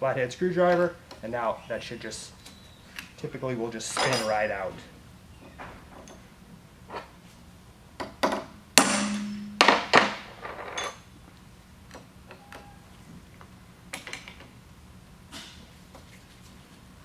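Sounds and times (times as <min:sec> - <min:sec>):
steel tools clanking on metal: 0:03.8 - 0:04.4.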